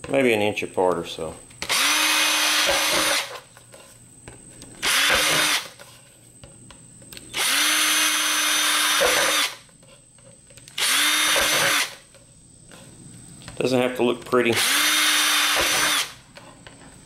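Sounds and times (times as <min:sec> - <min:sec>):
power drill boring plastic: 0:01.7 - 0:03.4, 0:04.8 - 0:05.7, 0:07.4 - 0:09.6, 0:10.8 - 0:12.0, 0:14.6 - 0:16.2.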